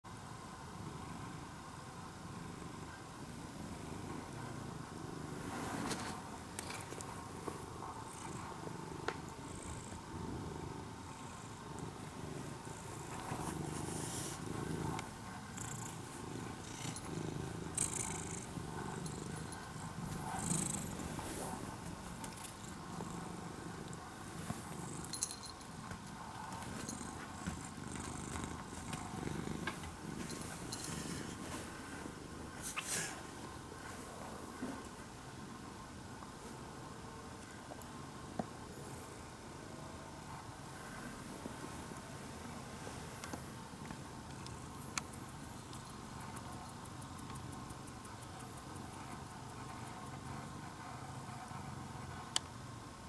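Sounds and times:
cat purring: 0.4s - 35.6s.

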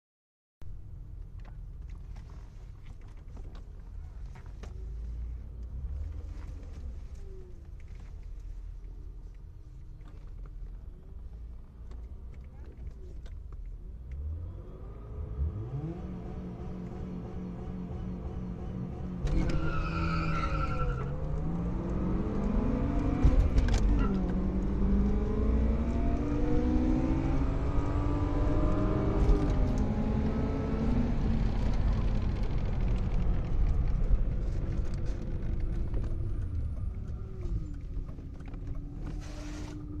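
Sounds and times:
car engine accelerating: 14.0s - 40.0s.

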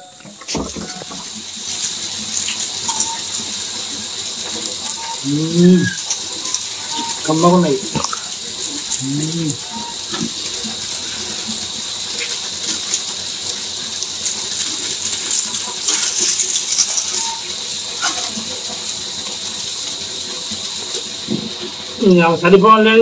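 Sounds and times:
steady hiss: 0.0s - 23.0s
snack packet crinkling: 14.5s - 17.5s.

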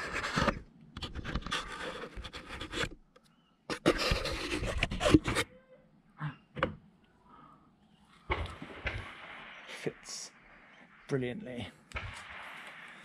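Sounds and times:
rubbing and scraping on wood: 0.0s - 3.0s, 3.7s - 5.5s.

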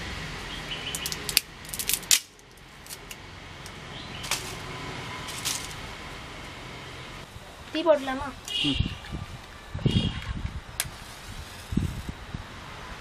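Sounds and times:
dry sticks snapping: 0.9s - 4.6s.

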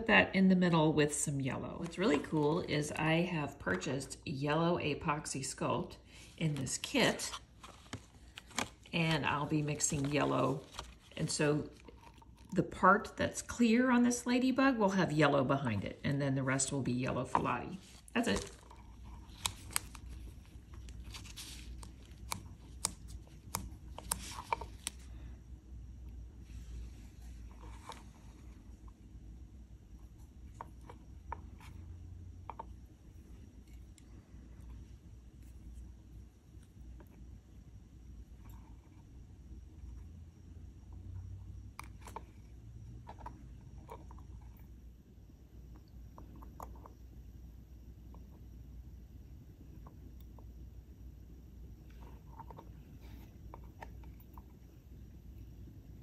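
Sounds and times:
low steady hum: 0.0s - 56.0s
rubber glove crinkling and snapping: 7.2s - 9.0s, 9.8s - 12.6s, 17.8s - 25.1s.

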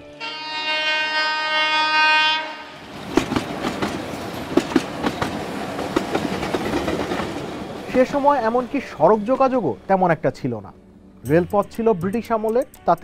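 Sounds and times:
train horn: 0.0s - 2.9s
train wheels clickety-clack: 3.0s - 8.3s.

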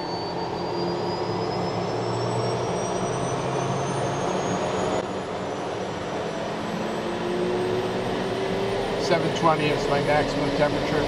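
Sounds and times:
rising turbine whine: 0.0s - 11.0s
turboprop engine noise: 0.0s - 11.0s
pilot talking: 9.0s - 11.0s.

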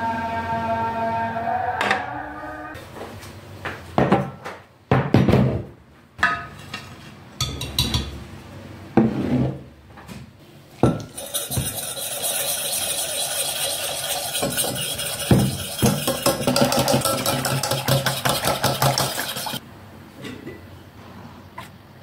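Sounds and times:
metal pot clanking on wooden table: 14.3s - 19.6s
water pouring into pot: 15.1s - 19.6s.

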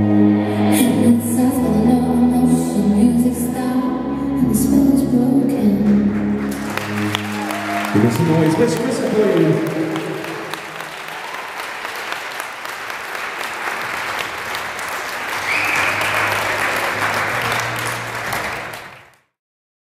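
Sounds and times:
backing music: 0.0s - 11.1s, 12.5s - 19.2s
audience applauding: 5.9s - 19.3s.

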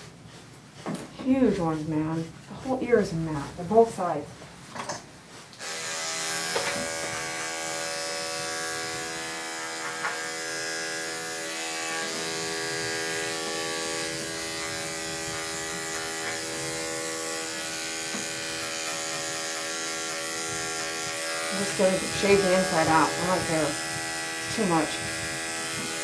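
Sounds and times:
electric clippers buzzing: 5.6s - 26.0s.

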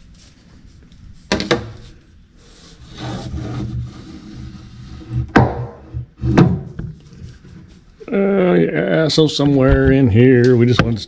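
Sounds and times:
pipe scraping and rubbing: 1.8s - 8.0s.

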